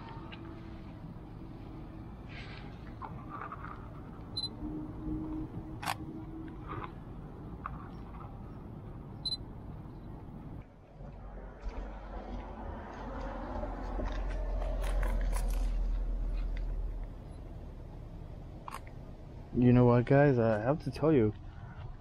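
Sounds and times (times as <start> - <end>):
camera beep: 4.3 - 4.6, 9.2 - 9.4.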